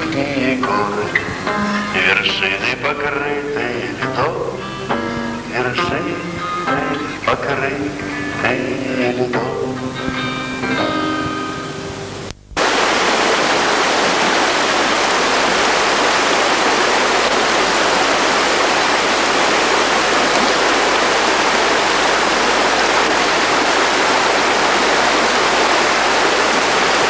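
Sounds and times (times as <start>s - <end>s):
river rushing over rocks: 12.6s - 27.0s.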